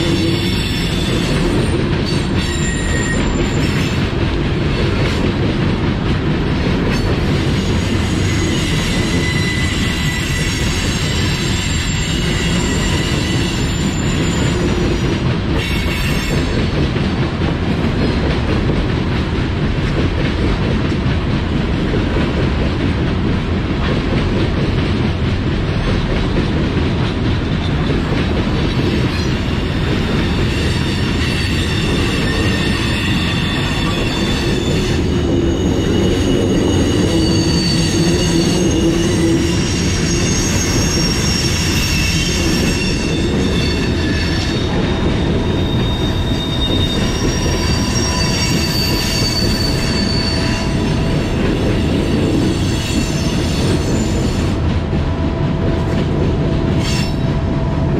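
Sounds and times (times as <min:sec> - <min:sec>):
train wheels rumbling on rail: 0:00.0 - 0:57.9
high wheel squeals: 0:00.2 - 0:04.0, 0:07.0 - 0:15.2, 0:30.2 - 0:54.6.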